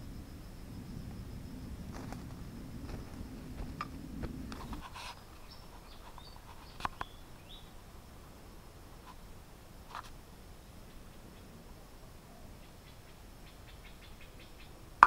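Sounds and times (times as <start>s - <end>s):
low rumbling handling noise: 0.7s - 5.6s
sharp crackles: 1.8s - 7.1s
small ticks: 1.9s - 7.2s, 9.9s - 10.2s
faint bird chirps: 5.4s - 7.8s, 12.2s - 14.8s.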